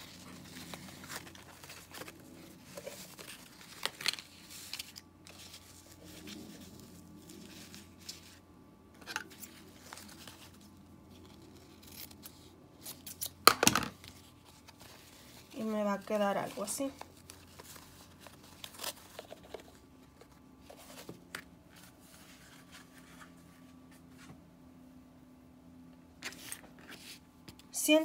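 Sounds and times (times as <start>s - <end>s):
fabric ribbon rustling: 0.0s - 8.4s, 21.7s - 24.3s.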